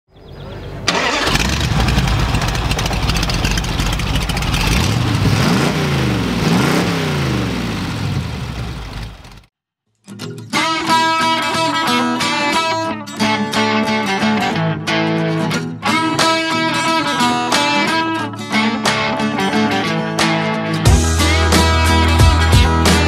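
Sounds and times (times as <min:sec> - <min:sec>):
supercharged engine revving roughly: 0:00.9 - 0:09.5.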